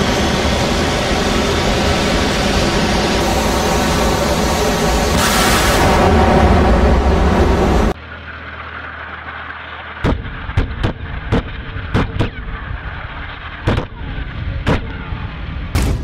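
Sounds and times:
gunshots: 15.7 - 16.0.

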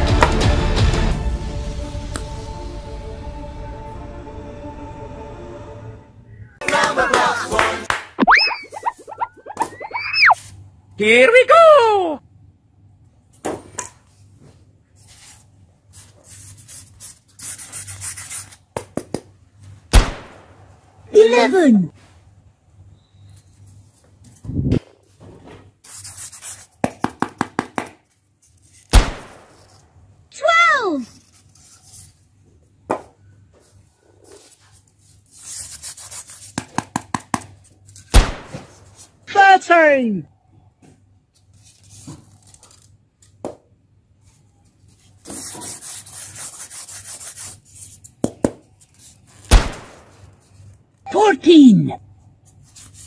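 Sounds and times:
polystyrene foam scraping rub: 14.9 - 18.6, 48.8 - 50.7
foam rubbing and scraping: 14.9 - 18.7, 25.7 - 26.8, 31.0 - 32.4, 33.6 - 36.6, 44.3 - 50.7.

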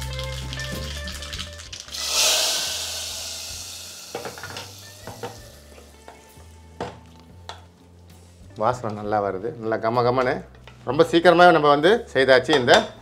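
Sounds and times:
hot oil sizzling: 0.0 - 6.4.

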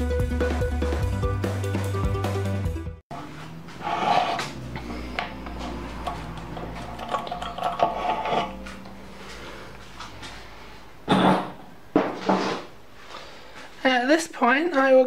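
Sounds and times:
metal tools clinking: 5.6 - 8.8.

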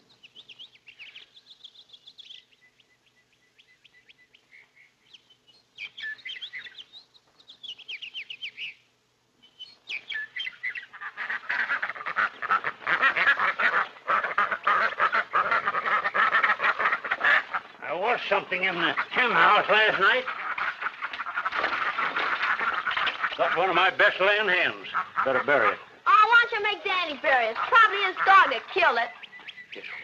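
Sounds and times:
birds chirping: 0.0 - 30.0
hens cackling and squawking: 9.9 - 30.0.

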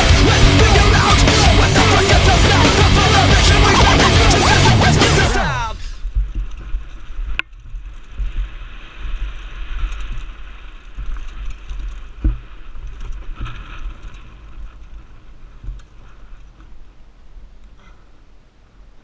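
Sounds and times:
mountain bike rattling on dirt trail: 6.0 - 18.1
wind rumbling on microphone: 6.0 - 19.0.

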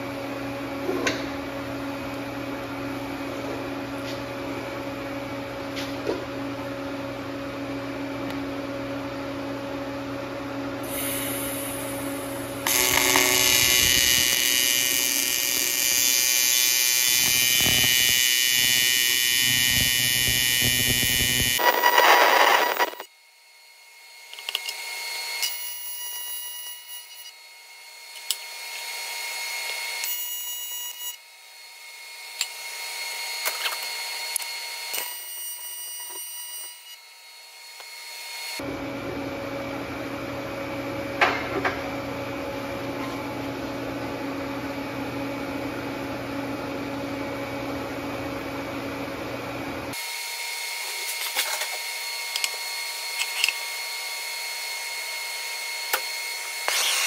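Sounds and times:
welding arc buzzing: 10.8 - 23.1, 25.4 - 27.3, 33.4 - 37.0.

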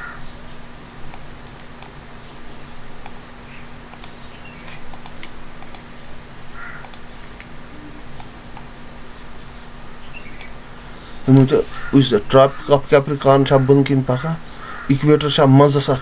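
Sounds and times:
low electrical hum: 0.0 - 16.0
computer mouse clicks: 1.1 - 2.0, 3.0 - 3.2, 3.9 - 5.9, 6.8 - 7.5.

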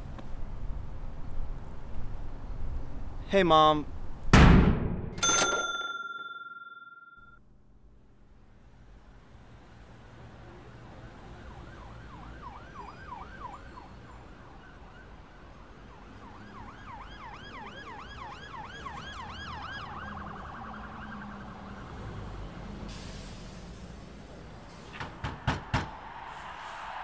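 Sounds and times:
emergency vehicle siren: 10.6 - 22.9
hiss: 22.8 - 25.2.

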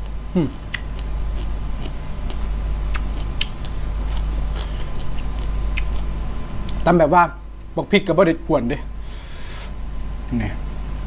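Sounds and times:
crunchy chewing: 0.0 - 6.8
steady low hum: 0.0 - 11.0.

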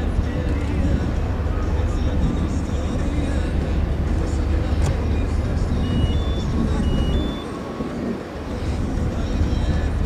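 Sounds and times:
low outdoor rumble: 0.0 - 10.0
electronic two-tone beep: 5.8 - 7.6.

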